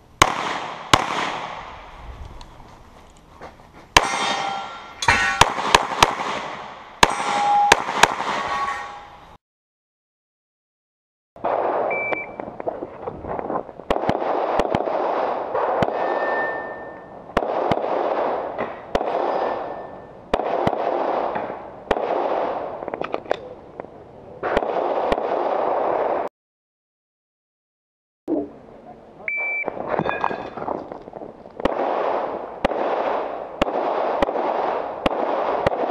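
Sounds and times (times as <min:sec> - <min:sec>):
pistol shots with echo: 0:00.2 - 0:01.9, 0:04.0 - 0:08.7, 0:13.9 - 0:22.8, 0:24.4 - 0:26.3, 0:31.6 - 0:35.9
shot timer beep: 0:11.9 - 0:12.4, 0:29.3 - 0:29.7.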